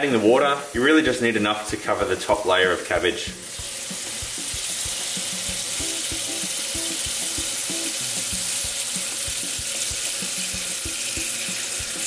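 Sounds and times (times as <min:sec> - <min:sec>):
tap water running into a pan: 0:00.0 - 0:12.0.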